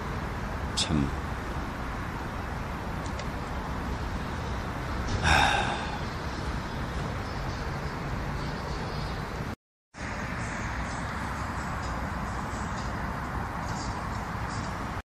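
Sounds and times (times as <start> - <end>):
distant city traffic hum: 0.0 - 15.0
breathy puff: 5.2 - 6.0.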